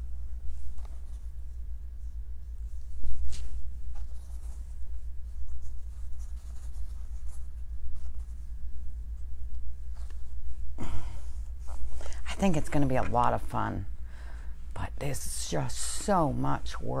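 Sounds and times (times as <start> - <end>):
scratching and rustling handling: 0.0 - 13.5
steady low hum: 0.0 - 17.0.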